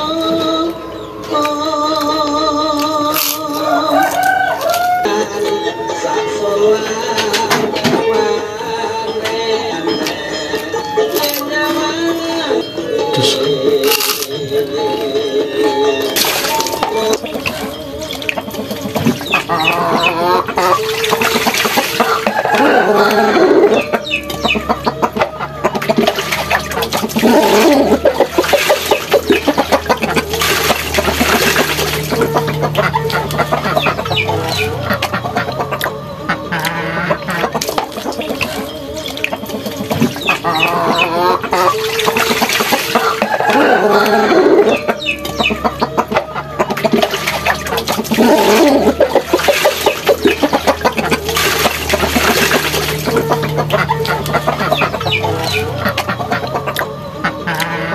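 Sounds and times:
chickens clucking: 0.0s - 57.9s
water splashing as plates are washed: 3.0s - 5.0s, 16.0s - 57.9s.

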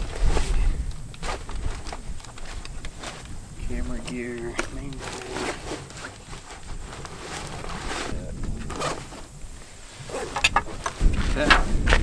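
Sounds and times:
fabric rustling: 0.0s - 12.0s
straps sliding: 0.0s - 12.0s
sharp clicks: 0.8s - 5.0s.

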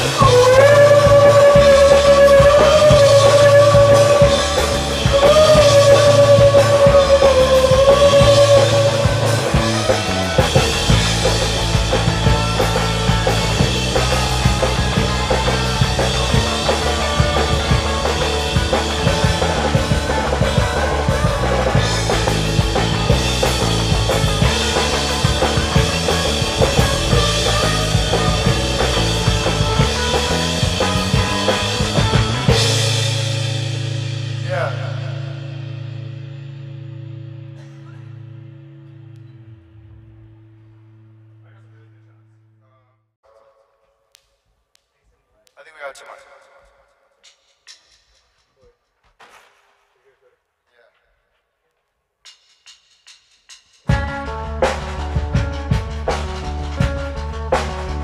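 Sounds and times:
wavering high held note: 0.0s - 10.9s
steady drum beat: 0.0s - 36.4s, 52.2s - 58.0s
rock band playing live: 0.0s - 40.5s, 53.9s - 58.0s.

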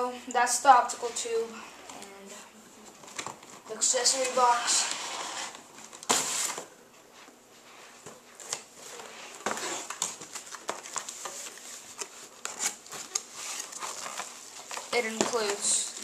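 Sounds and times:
cardboard boxes scraping: 3.8s - 6.6s, 8.8s - 16.0s.

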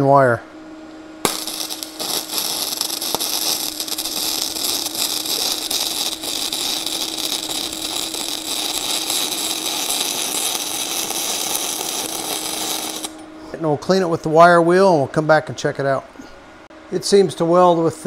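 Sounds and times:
welding arc crackling: 1.2s - 13.2s.

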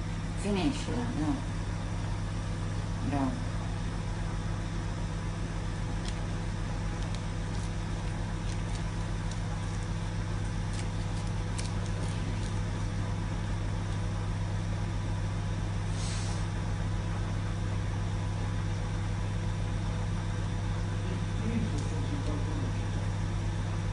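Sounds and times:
appliance electrical hum: 0.0s - 23.9s
cat chewing lettuce: 5.7s - 14.2s.

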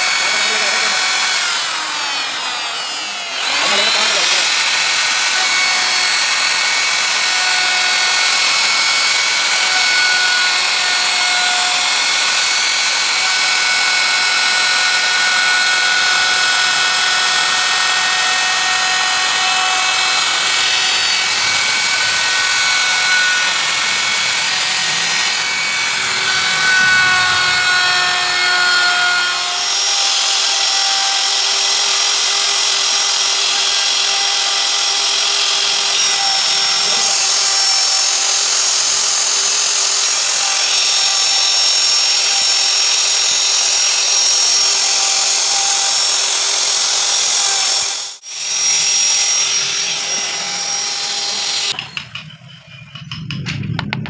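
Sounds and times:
router whining while cutting wood: 0.0s - 52.3s.

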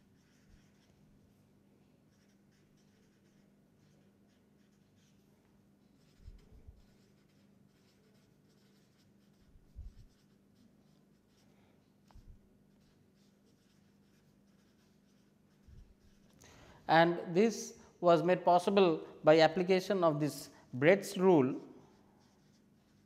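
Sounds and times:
marker scratching on paper: 0.0s - 1.0s, 2.1s - 11.4s, 12.0s - 16.4s, 21.1s - 23.0s
steady faint hum: 0.0s - 23.0s.

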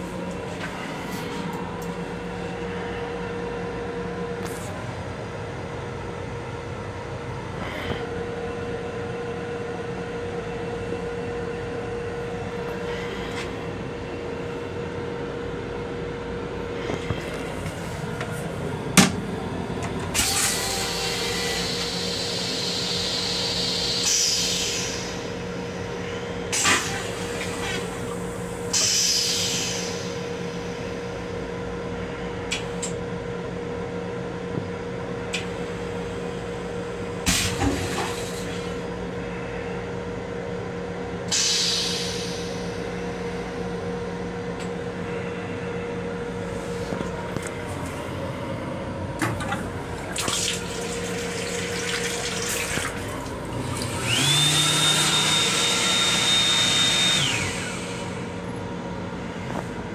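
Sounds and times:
rail car hum: 0.0s - 59.9s
toilet flushing: 49.2s - 58.2s.

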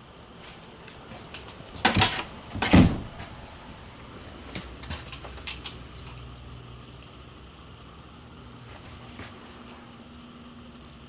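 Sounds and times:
door knocks shutting: 1.8s - 3.4s.

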